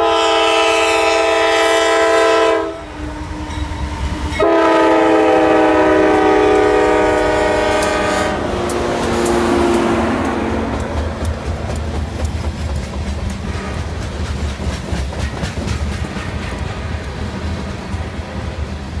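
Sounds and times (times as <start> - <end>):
train wheels rumbling on rails: 0.0 - 19.0
wheels clicking over rail joints: 6.5 - 18.4.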